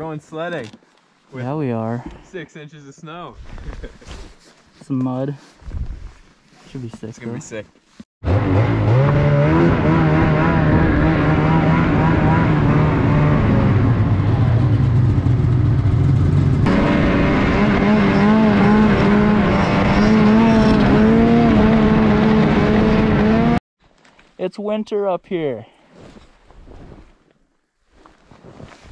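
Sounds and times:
snowmobile engine running: 8.4s - 23.6s.

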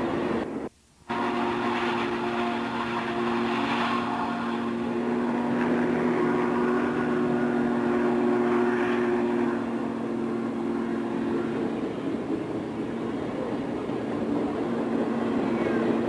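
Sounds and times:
train rumbling: 0.0s - 16.0s
steam locomotive whistle: 1.1s - 9.9s.

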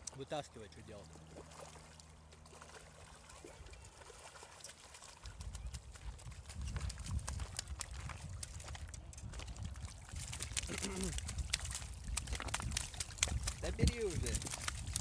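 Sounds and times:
fish splashing in water: 1.1s - 15.0s
low rumble on microphone: 5.2s - 15.0s.

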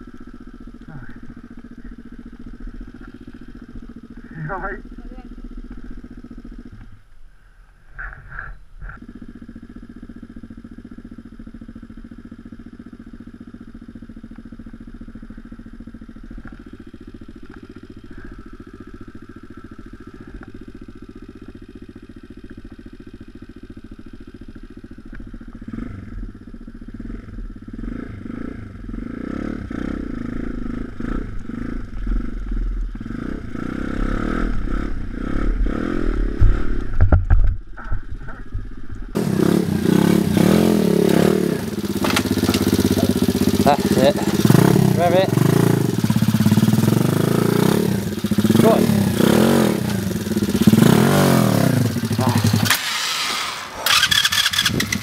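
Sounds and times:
motorbike revving and riding: 0.0s - 7.1s, 7.9s - 55.0s
motorbike engine idling: 0.0s - 55.0s
bike knocks and rattles: 36.3s - 39.1s, 41.1s - 43.6s.

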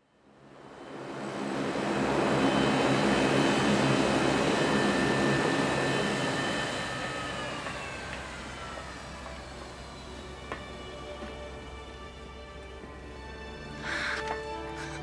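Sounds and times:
propeller drone: 0.0s - 15.0s
turbine whine: 0.0s - 15.0s.

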